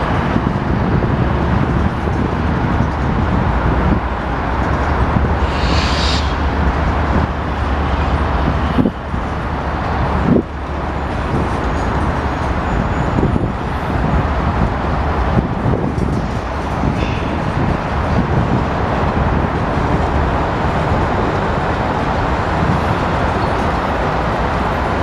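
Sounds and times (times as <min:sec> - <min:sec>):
train wheels rumbling on rail: 0:00.0 - 0:25.0
low hum: 0:04.8 - 0:08.1.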